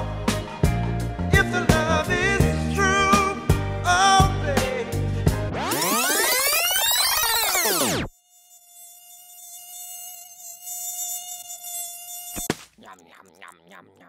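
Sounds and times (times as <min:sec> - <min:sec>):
electronic pitch sweep: 0:05.5 - 0:08.1
cartoon bee buzzing: 0:05.5 - 0:14.0.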